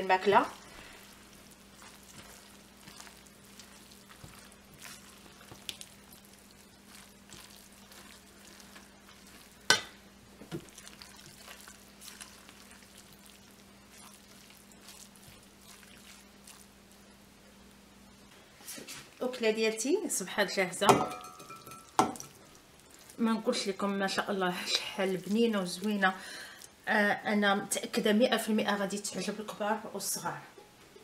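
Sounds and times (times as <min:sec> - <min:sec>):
faint sizzling: 0:00.0 - 0:31.0.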